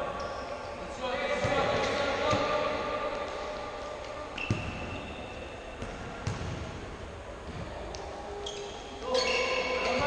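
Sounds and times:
ball kicks thudding: 5.8s - 6.6s.

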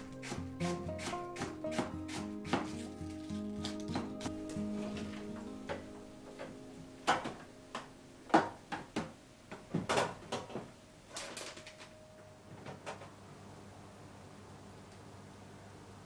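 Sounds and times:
items knocking in fridge door: 8.3s - 10.7s.

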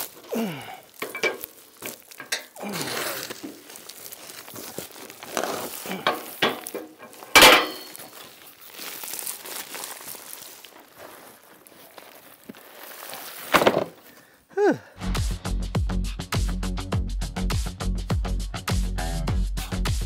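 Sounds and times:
paper wrapper rustling: 0.0s - 14.0s.

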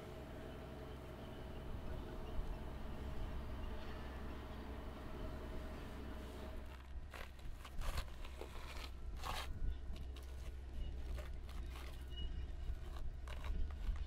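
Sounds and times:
short rustles and crunches: 6.2s - 14.0s.

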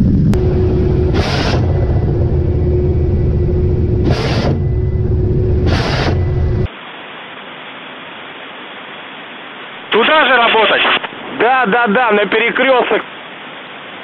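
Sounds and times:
helicopter rumble and hum: 0.0s - 6.7s
steady hiss: 5.7s - 14.0s.

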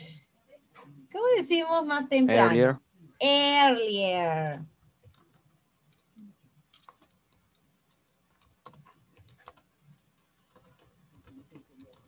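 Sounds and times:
typing on computer keyboard: 5.0s - 12.0s.

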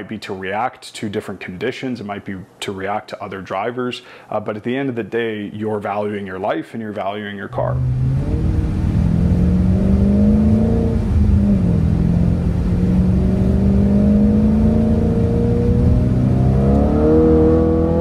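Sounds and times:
car engine revving: 7.7s - 18.0s.

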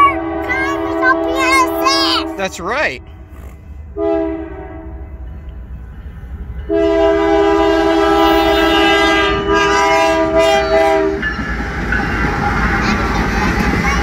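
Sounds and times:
locomotive air horn blast: 0.0s - 5.2s, 6.7s - 11.2s
locomotive rumble and wheel noise: 0.0s - 14.0s.

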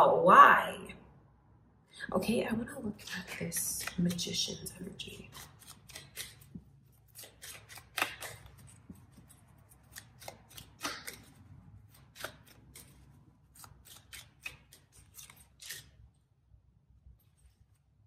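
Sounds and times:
cards clicking and snapping: 5.4s - 13.0s, 13.6s - 15.9s.

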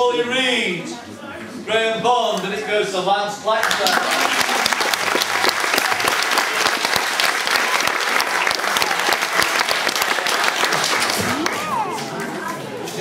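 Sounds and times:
audience applauding: 3.6s - 12.7s.

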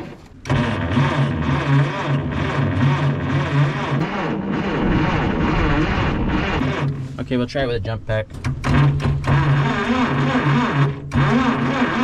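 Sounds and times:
starter motor cranking engine: 0.0s - 7.5s, 8.2s - 12.0s.

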